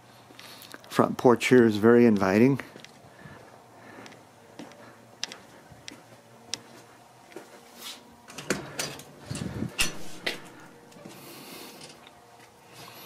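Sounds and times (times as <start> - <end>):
metal screen door rattling: 9.7 - 10.6.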